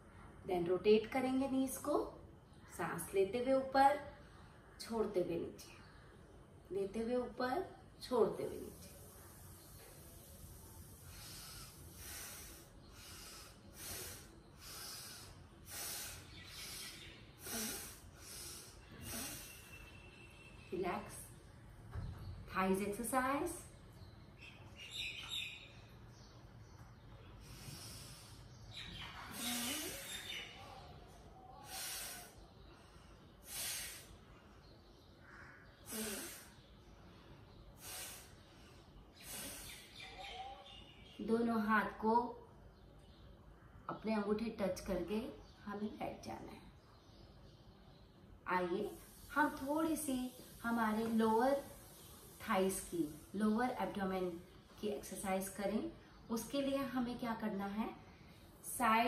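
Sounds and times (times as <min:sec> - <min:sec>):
woman's forceful breaths: 0:09.0 - 0:20.0, 0:27.3 - 0:30.6, 0:31.5 - 0:34.4, 0:35.8 - 0:40.0
woman breathing hard: 0:11.0 - 0:19.8.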